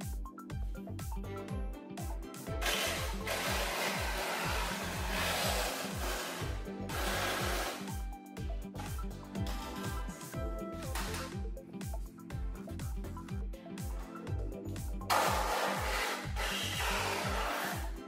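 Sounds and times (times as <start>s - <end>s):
music with deep bass beat: 0.0s - 18.0s
power tool hissing on metal: 2.6s - 8.0s.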